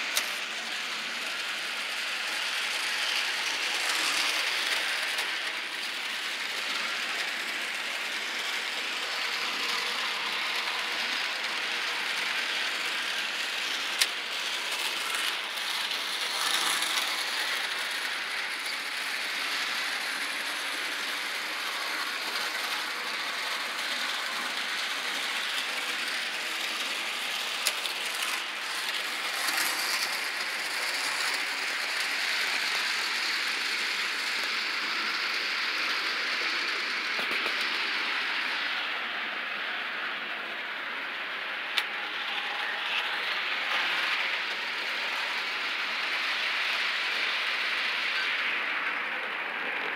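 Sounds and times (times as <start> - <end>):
model train whirring rattle: 0.0 - 49.9.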